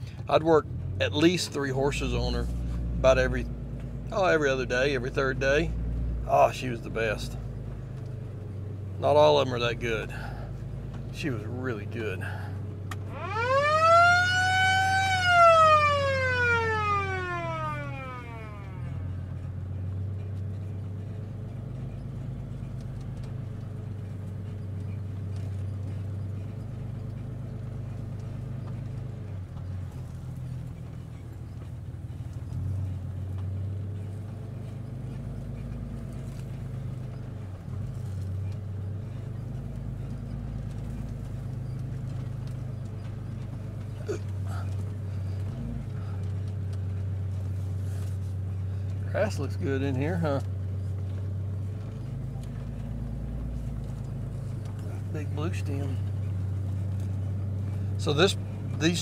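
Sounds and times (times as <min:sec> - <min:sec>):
truck engine humming: 0:00.0 - 0:59.0
siren wailing: 0:13.0 - 0:19.2.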